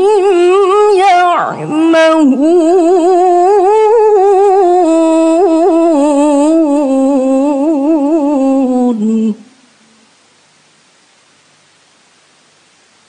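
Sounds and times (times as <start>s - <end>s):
woman chanting recitation: 0.0s - 9.7s
faint hiss: 0.0s - 13.0s.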